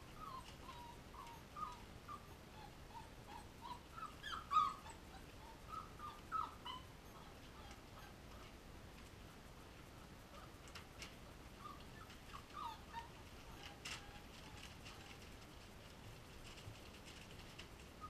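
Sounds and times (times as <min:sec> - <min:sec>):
puppies whimpering and squeaking: 0:00.0 - 0:08.2, 0:11.6 - 0:15.3.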